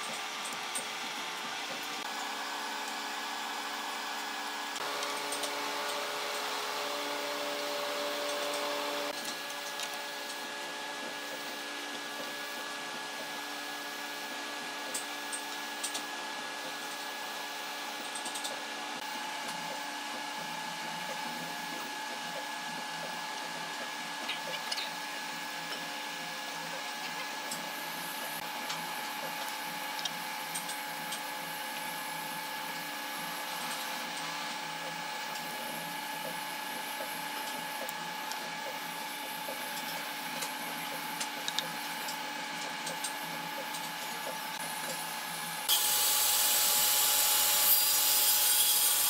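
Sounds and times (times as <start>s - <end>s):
machine humming: 0.0s - 9.2s.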